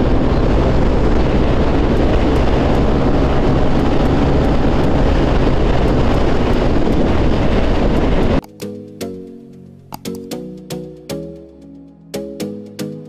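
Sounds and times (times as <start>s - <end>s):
low scooter engine note: 0.0s - 8.4s
wind rushing over microphone: 0.0s - 8.4s.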